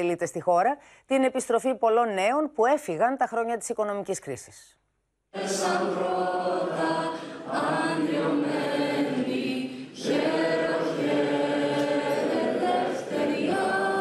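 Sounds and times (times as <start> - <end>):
crowd singing along: 5.4 - 14.0.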